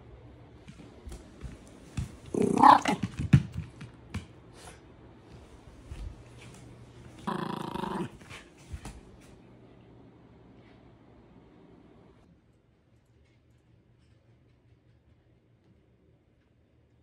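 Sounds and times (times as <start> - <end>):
dog growling playfully: 2.2 - 3.0, 7.2 - 8.4.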